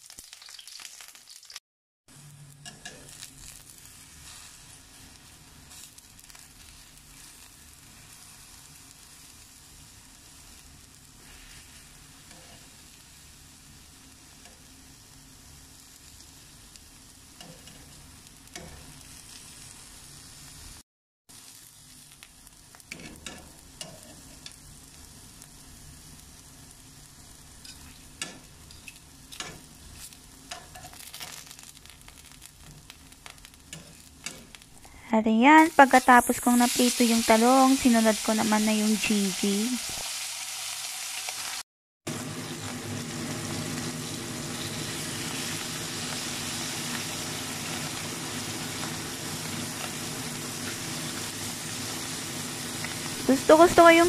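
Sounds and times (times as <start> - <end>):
eggplant sizzling in oil: 0.0 - 54.0.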